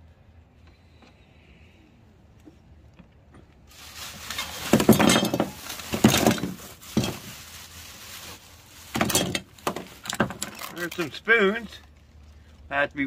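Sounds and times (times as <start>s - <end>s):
plastic trash bag rustling: 3.6s - 11.9s.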